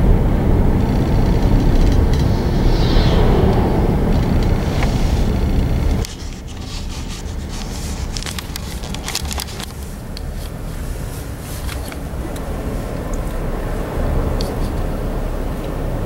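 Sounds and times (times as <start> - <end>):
car road and engine rumble: 0.0 - 16.0
clicks and crackles: 7.6 - 10.3.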